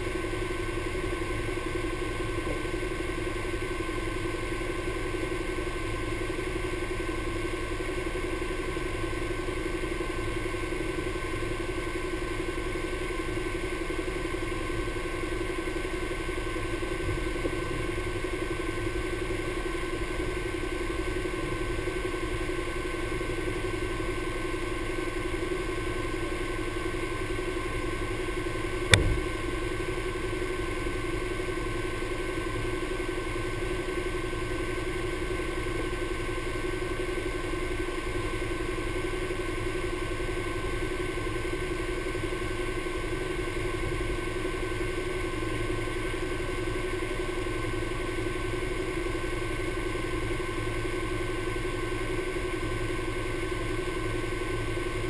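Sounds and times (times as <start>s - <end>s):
engine idling: 0.0s - 55.0s
sharp knock: 28.9s - 29.4s.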